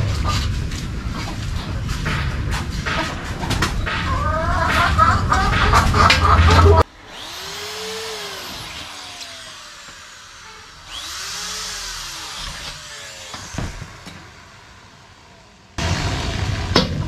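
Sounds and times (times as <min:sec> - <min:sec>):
power tool motor spinning: 0:06.4 - 0:14.8.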